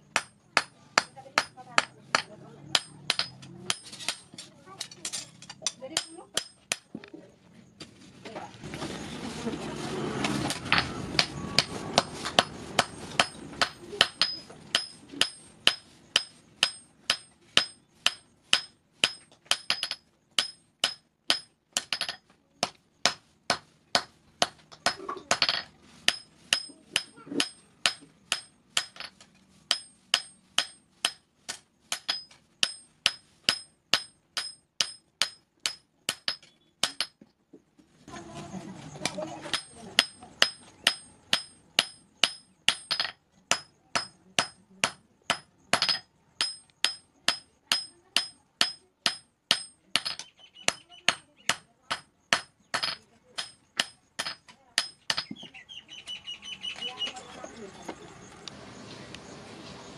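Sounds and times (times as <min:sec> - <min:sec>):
hammer ringing on anvil: 0:39.5 - 0:55.4.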